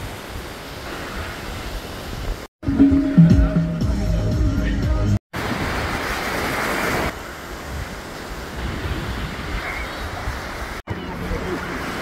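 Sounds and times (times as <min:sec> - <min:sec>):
sea surf rushing: 0:00.0 - 0:03.8, 0:05.3 - 0:12.0
wind buffeting microphone: 0:07.2 - 0:11.5.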